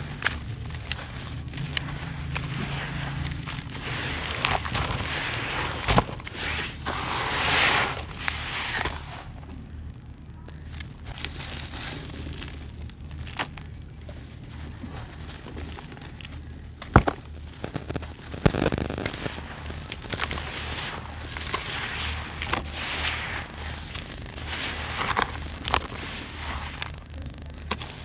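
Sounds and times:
gritty crumbs crackling: 0:00.0 - 0:28.0
low steady hum: 0:00.0 - 0:28.0
sharp cracks: 0:16.8 - 0:28.0.

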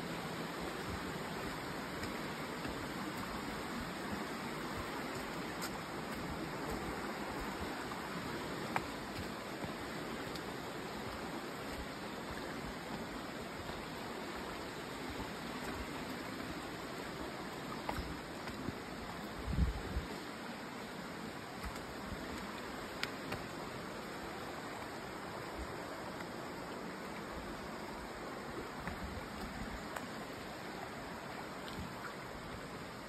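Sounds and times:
stream rushing: 0:00.0 - 0:33.0.

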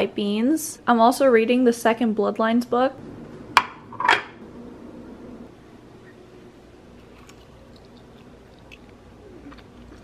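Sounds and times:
low room hum: 0:00.0 - 0:10.0
faint chewing: 0:07.0 - 0:10.0.

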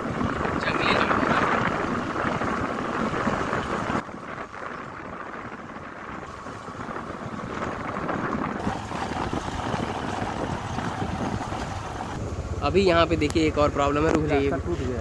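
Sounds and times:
wind buffeting microphone: 0:00.0 - 0:15.0
motorcycle engine running: 0:06.3 - 0:15.0.

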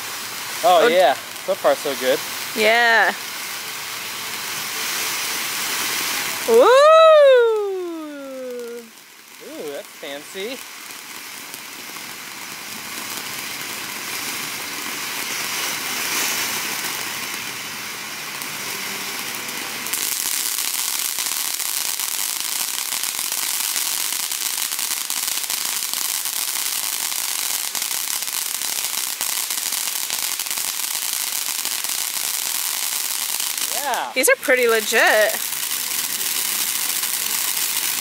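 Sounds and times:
fountain firework hissing spray: 0:00.0 - 0:38.0.

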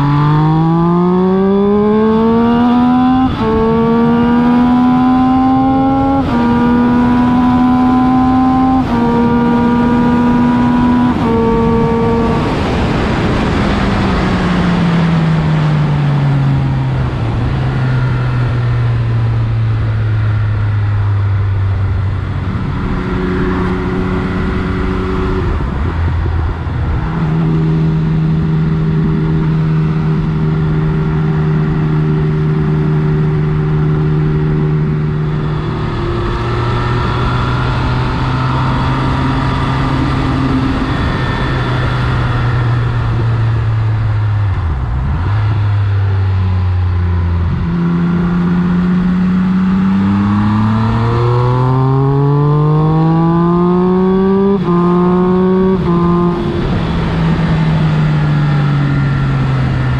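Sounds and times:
motorcycle engine: 0:00.0 - 0:59.9
wind rush over microphone: 0:08.8 - 0:18.5, 0:21.7 - 0:52.2, 0:53.0 - 0:59.9.

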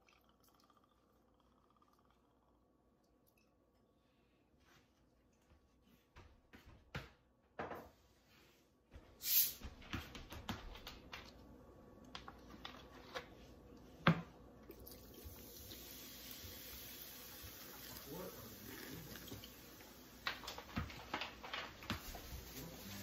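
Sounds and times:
liquid pouring into pot: 0:00.0 - 0:03.6, 0:14.6 - 0:20.3
loud fizzing hiss: 0:09.2 - 0:09.6, 0:15.4 - 0:20.2.

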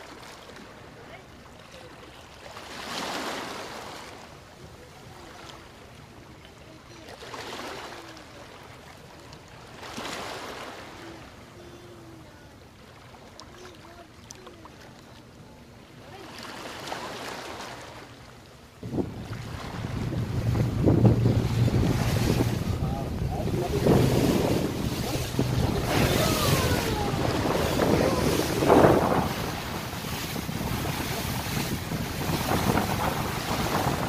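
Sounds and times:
boat engine hum: 0:00.0 - 0:34.0
water rushing along hull: 0:00.0 - 0:34.0
wind buffeting microphone: 0:18.8 - 0:34.0.

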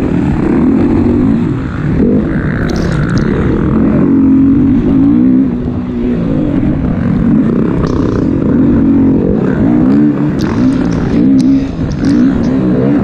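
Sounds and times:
dirt bike engine revving: 0:00.0 - 0:13.0
low rumble: 0:00.0 - 0:13.0.

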